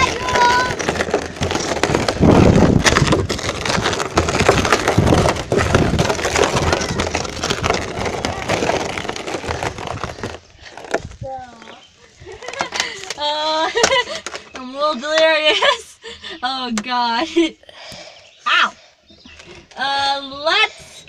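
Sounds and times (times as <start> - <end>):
plastic drum rolling over gravel: 0.0 - 15.8.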